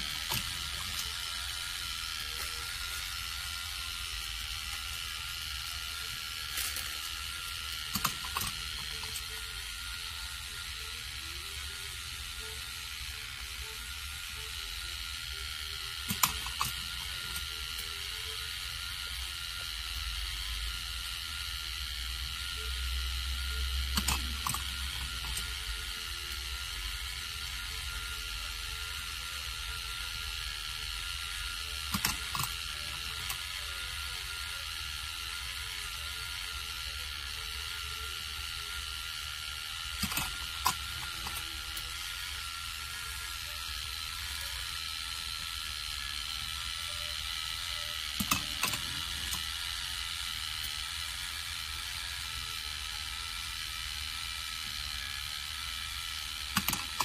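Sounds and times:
toy motor whine and gear rattle: 0.0 - 57.0
sharp plastic clacks: 40.0 - 41.4.

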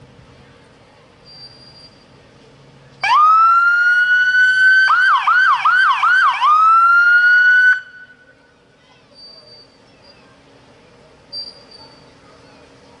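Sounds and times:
police siren wailing and yelping: 3.0 - 7.9.

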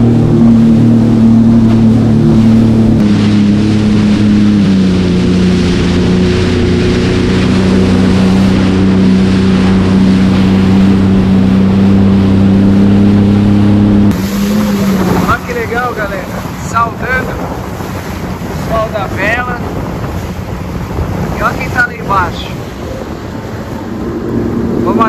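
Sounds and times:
jet ski engine running: 0.0 - 25.0
water rushing beneath hull: 0.0 - 25.0.

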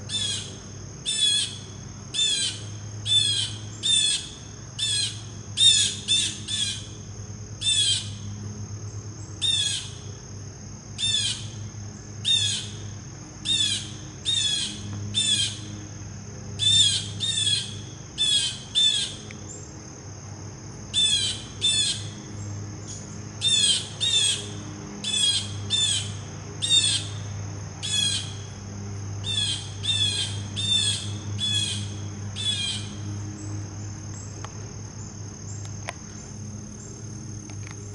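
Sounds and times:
high insect drone: 0.0 - 37.9
blue jay calling: 0.1 - 6.9, 7.6 - 8.2, 9.4 - 10.0, 11.0 - 11.6, 12.2 - 12.8, 13.4 - 15.7, 16.6 - 19.2, 20.9 - 22.2, 22.9 - 27.2, 27.8 - 28.4, 29.2 - 33.0.

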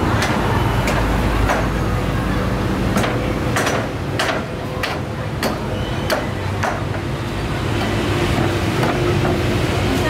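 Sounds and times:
low market hum: 0.0 - 10.0.

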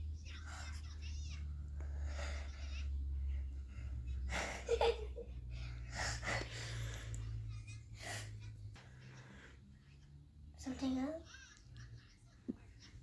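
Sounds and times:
low steady hum: 0.0 - 13.0
child giggling: 4.0 - 6.5, 7.2 - 10.0, 11.0 - 13.0.

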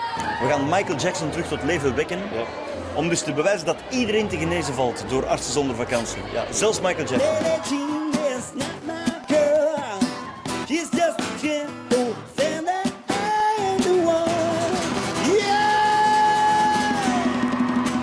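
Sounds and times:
strummed acoustic guitar: 6.0 - 18.0
man singing: 6.6 - 17.4.

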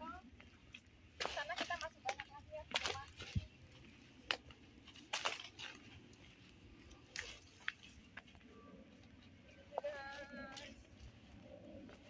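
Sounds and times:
footsteps crunching on trail: 0.3 - 9.1.

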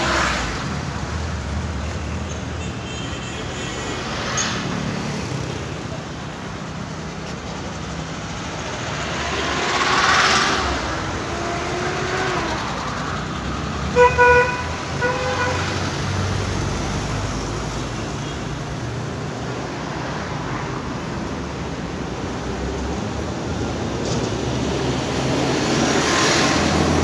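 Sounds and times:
street traffic rumble: 0.0 - 27.0
vehicle passing close by: 8.5 - 13.8
car horn honking: 13.9 - 15.8.

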